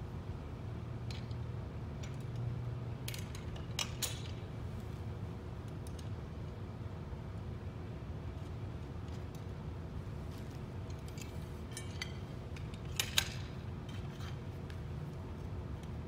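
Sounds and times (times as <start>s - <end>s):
steady low hum: 0.0s - 16.0s
small metal clicks and clinks: 2.0s - 4.4s, 5.6s - 6.2s, 10.8s - 14.8s.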